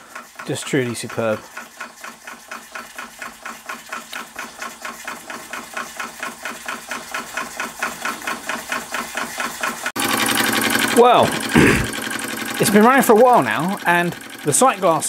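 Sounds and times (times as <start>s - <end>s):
steam engine puffing: 0.0s - 4.0s, 11.3s - 12.5s.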